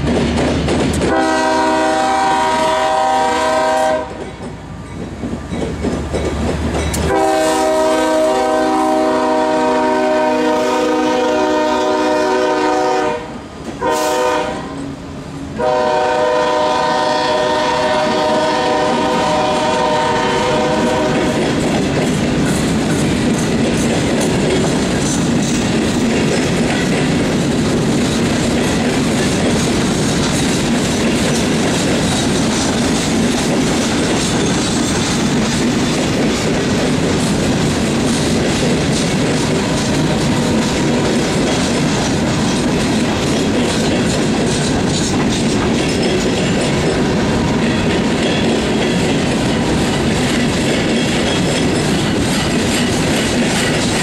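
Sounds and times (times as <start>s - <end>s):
rail cars clickety-clack: 0.0s - 54.0s
locomotive air horn: 1.1s - 4.2s, 7.1s - 14.9s, 15.6s - 21.4s.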